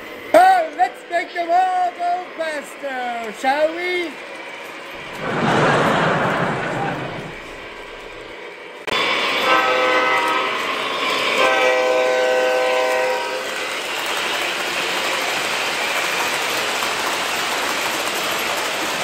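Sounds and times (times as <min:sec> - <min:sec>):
model train rolling on track: 0:00.0 - 0:19.0
model train horn: 0:09.3 - 0:13.6.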